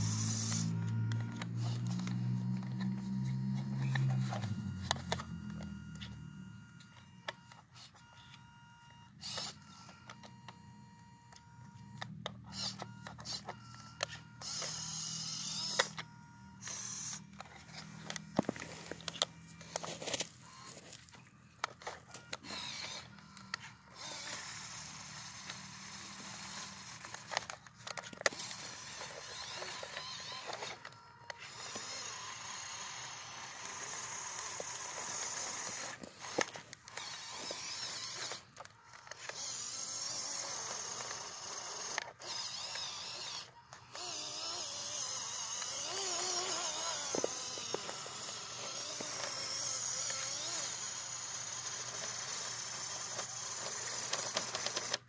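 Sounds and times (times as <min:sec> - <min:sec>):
tyres and drivetrain clicks: 0:00.0 - 0:07.6, 0:21.6 - 0:55.0
electric motor whining: 0:00.0 - 0:55.0.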